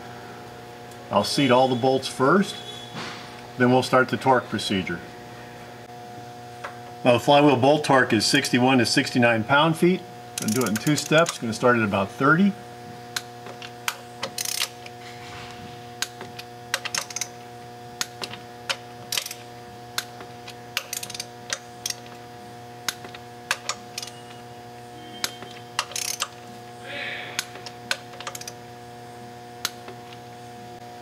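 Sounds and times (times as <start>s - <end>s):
torque wrench ratchet clicks: 10.4s - 11.4s, 13.2s - 14.9s, 16.0s - 17.3s, 18.0s - 22.2s, 22.9s - 24.4s, 25.2s - 26.4s, 27.4s - 28.6s
low hum: 14.8s - 17.4s.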